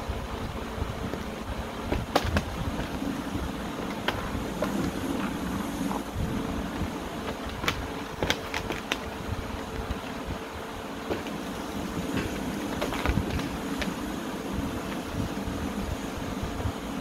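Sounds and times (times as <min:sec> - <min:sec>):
claws clicking on plastic: 0:07.2 - 0:10.2.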